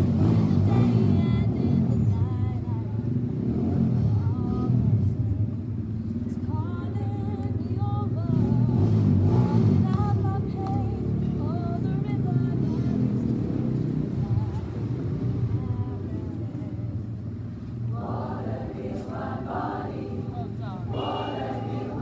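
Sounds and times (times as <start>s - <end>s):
choir singing: 17.9s - 22.0s.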